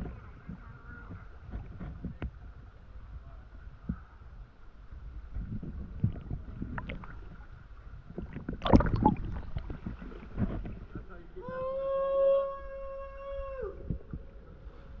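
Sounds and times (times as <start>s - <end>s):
splashing and knocking in water: 5.3s - 11.1s.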